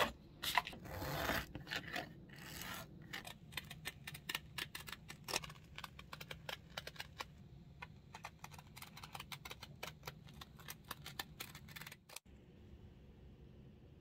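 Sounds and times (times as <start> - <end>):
low steady hum: 1.6 - 14.0.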